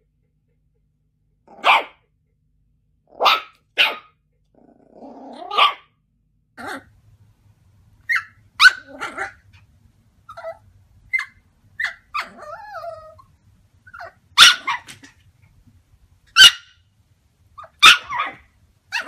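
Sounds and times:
small dog barking: 0:01.5 - 0:02.0, 0:03.1 - 0:04.2, 0:05.3 - 0:05.9, 0:08.1 - 0:09.6, 0:13.9 - 0:15.2, 0:16.3 - 0:16.8, 0:17.6 - 0:19.0
dog yipping: 0:01.6 - 0:02.0, 0:03.1 - 0:04.2, 0:05.4 - 0:05.9, 0:08.0 - 0:09.4, 0:10.3 - 0:13.3, 0:13.9 - 0:15.2, 0:16.3 - 0:16.8, 0:17.6 - 0:19.0
dog whining: 0:10.3 - 0:15.1, 0:17.6 - 0:19.0.

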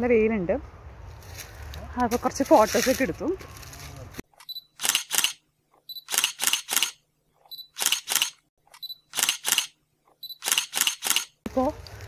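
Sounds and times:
camera shutter clicks: 0:04.4 - 0:05.4, 0:06.0 - 0:07.0, 0:07.7 - 0:09.8, 0:10.4 - 0:11.4
short high beep: 0:05.9 - 0:06.2, 0:07.5 - 0:07.8, 0:10.2 - 0:10.6.

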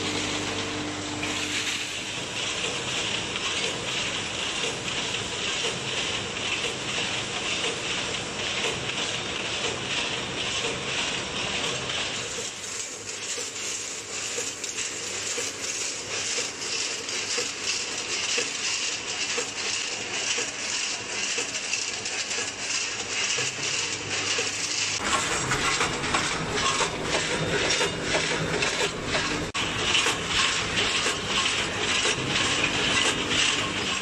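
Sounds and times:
low machine hum: 0:00.0 - 0:02.6.

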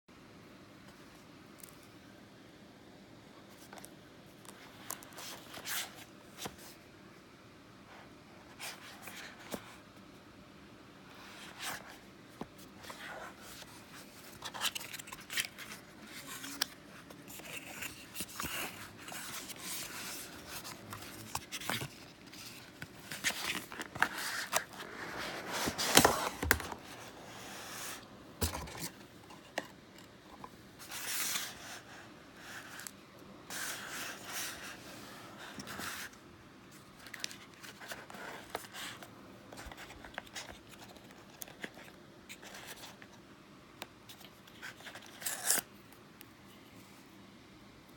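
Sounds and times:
cardboard rustling and scraping: 0:11.1 - 0:32.9.

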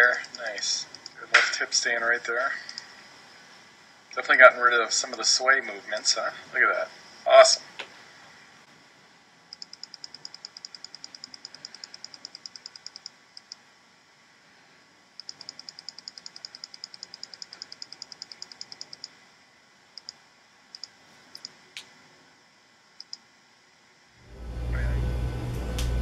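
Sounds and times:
rapid computer control clicks: 0:00.1 - 0:01.2, 0:09.5 - 0:13.6, 0:15.2 - 0:19.1.

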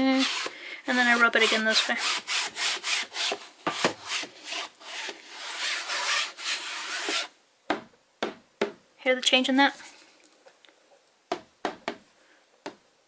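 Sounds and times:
hand rubbing canvas: 0:00.0 - 0:07.3.

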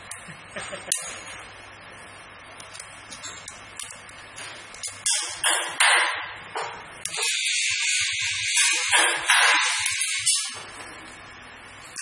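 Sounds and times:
high-pitched machine rattle: 0:07.1 - 0:10.6.

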